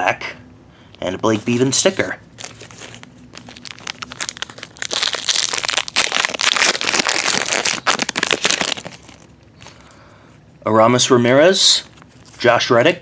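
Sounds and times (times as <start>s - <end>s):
foil wrapper crinkling and tearing: 2.4s - 9.3s.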